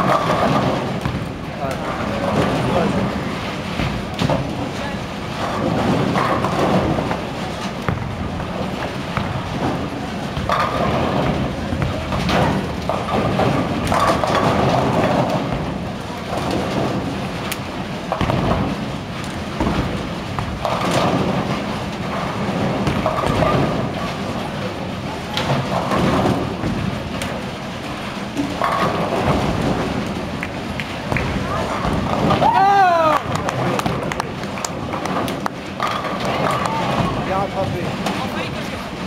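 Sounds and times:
bowling balls rolling: 0.0 - 39.0
bowling pins crashing: 0.0 - 39.0.

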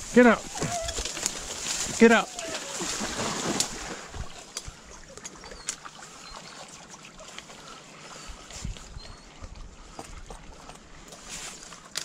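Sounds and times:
water splashing and sloshing: 0.0 - 12.0
twigs snapping: 0.5 - 3.8.

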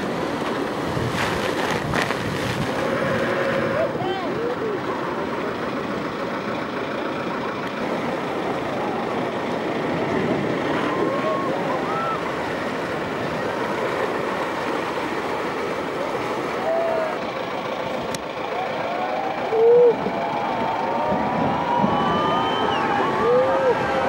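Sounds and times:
heavy wave crashing: 0.0 - 6.0, 7.8 - 18.0, 18.9 - 24.0
surf roaring and rushing: 0.0 - 24.0
people shouting: 10.7 - 12.4, 16.5 - 17.3, 18.5 - 24.0.

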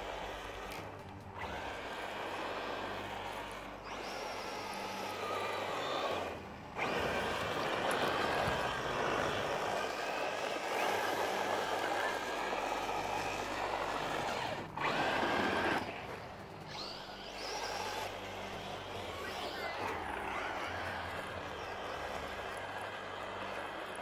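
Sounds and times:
electric motor whining: 0.0 - 24.0.

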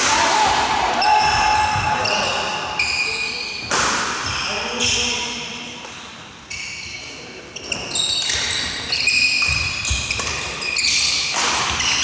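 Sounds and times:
sneakers squeaking on wooden floor: 1.0 - 5.1, 6.5 - 12.0
racket hitting shuttlecock: 8.3 - 12.0.

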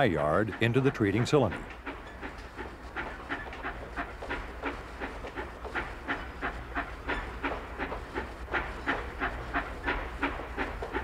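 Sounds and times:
rail trams clickety-clack on track: 0.0 - 11.0.

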